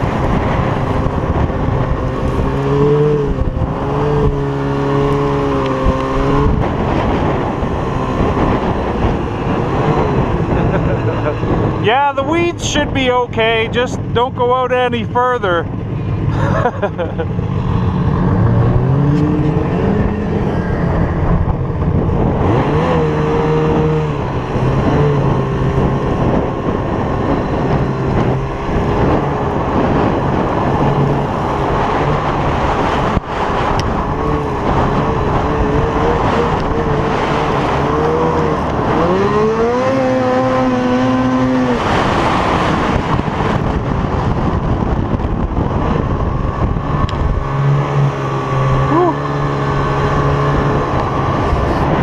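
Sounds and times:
snowmobile engine revving: 0.0s - 52.0s.

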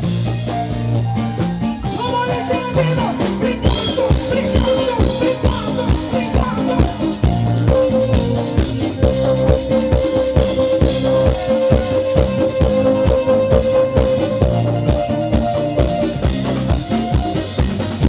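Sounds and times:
band playing: 0.0s - 18.0s
hand drums: 0.0s - 18.0s
man singing: 1.8s - 9.7s.

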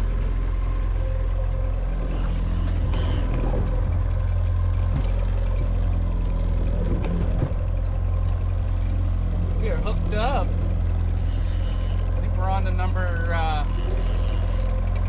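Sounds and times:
outboard motor running: 0.0s - 15.0s.

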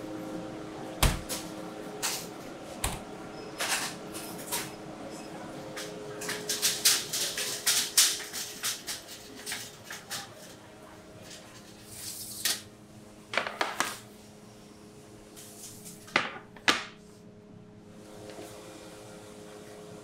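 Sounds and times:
steady hum: 0.0s - 13.4s.

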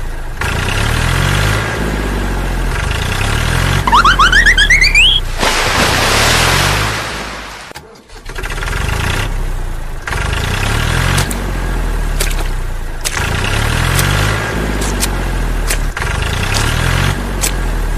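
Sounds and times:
vehicle engine revving: 0.4s - 4.7s, 13.1s - 17.9s.

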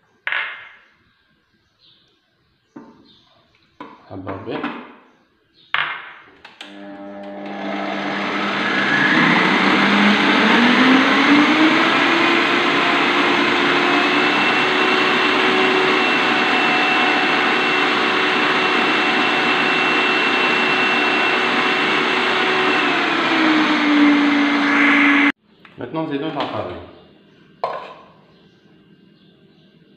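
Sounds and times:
food processor motor whine: 6.6s - 25.4s.

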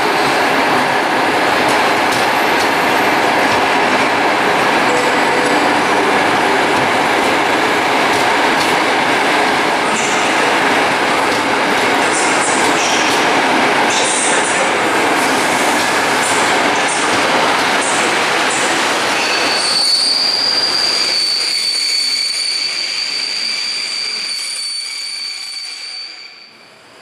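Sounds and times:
train wheels rumbling on rails: 0.0s - 23.1s
high-pitched wheel squeal: 19.2s - 26.7s.

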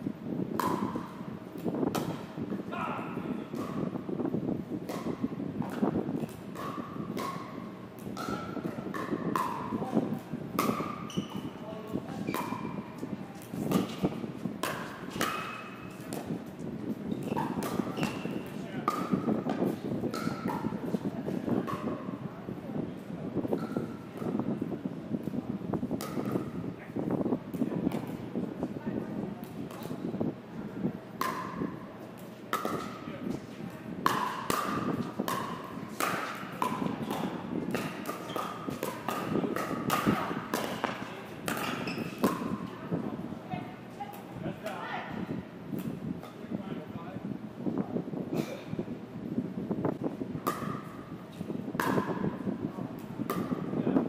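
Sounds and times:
paddles hitting plastic ball: 0.6s - 2.4s, 3.5s - 4.1s, 4.8s - 21.9s, 25.2s - 26.5s, 31.2s - 33.4s, 34.0s - 42.7s, 50.4s - 54.0s.

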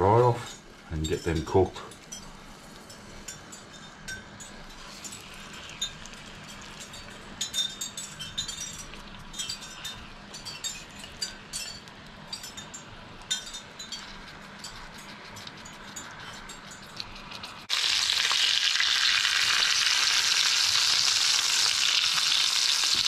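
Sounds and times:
meat patties sizzling in oil: 4.7s - 7.3s, 17.6s - 23.0s.

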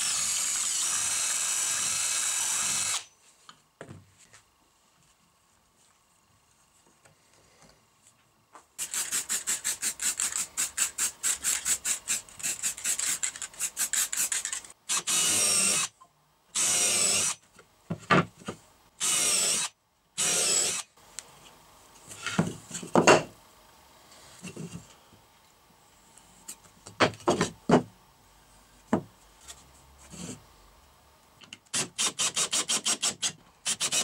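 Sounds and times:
cordless drill into wood: 0.0s - 3.1s, 13.9s - 15.9s, 16.6s - 17.4s, 19.0s - 20.9s.

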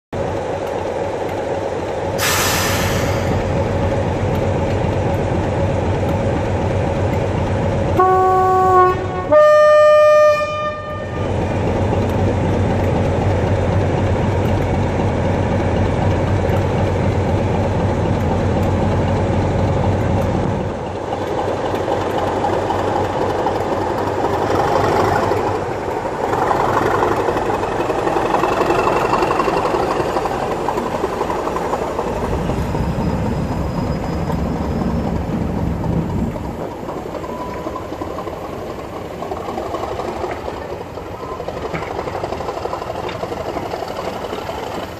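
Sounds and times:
diesel locomotive engine running: 0.2s - 44.9s
hiss of air: 2.2s - 3.7s
two-tone train horn: 8.0s - 11.5s.

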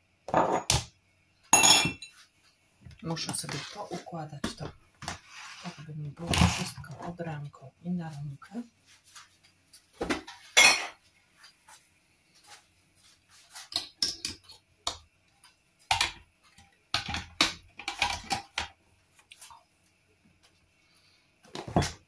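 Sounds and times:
kitchen items clicking and knocking: 15.9s - 16.2s, 16.9s - 18.8s.

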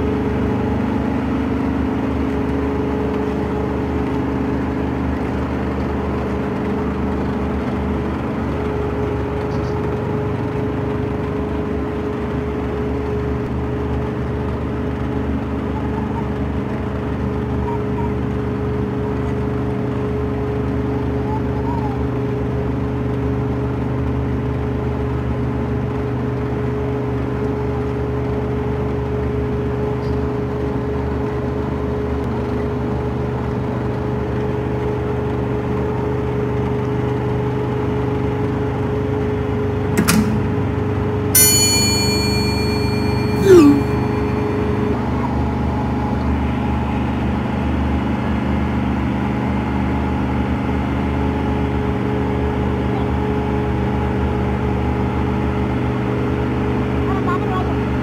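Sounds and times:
sharp click: 40.0s - 40.5s
short falling whistle: 41.4s - 44.3s
brief high-pitched squeal: 41.5s - 44.5s.

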